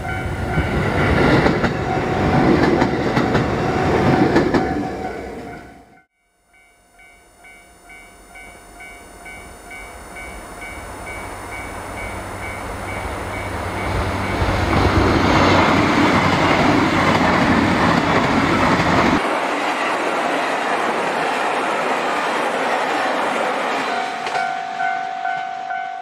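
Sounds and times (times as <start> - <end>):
wheels clattering on rails: 0.0 - 5.7, 11.1 - 25.9
diesel train passing: 0.0 - 26.0
faint level crossing bell: 4.7 - 14.5, 23.9 - 26.0.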